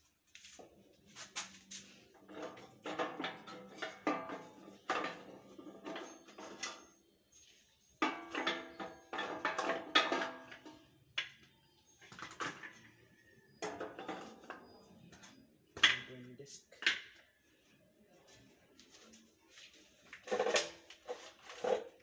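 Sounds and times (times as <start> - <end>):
sheet metal clanking and knocking: 2.2 - 6.9, 8.0 - 10.9.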